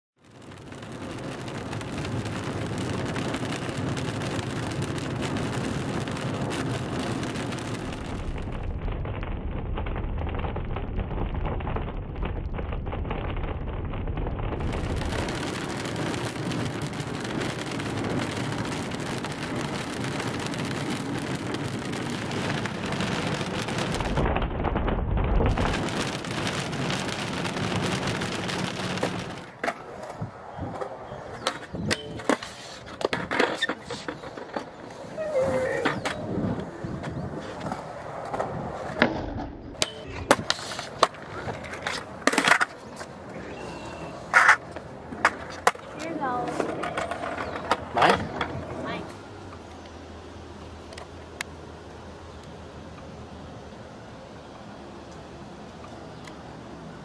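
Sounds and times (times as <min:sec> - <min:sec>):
heavy rain on car windshield: 0:00.2 - 0:29.6
thunder rumbling: 0:00.4 - 0:30.8.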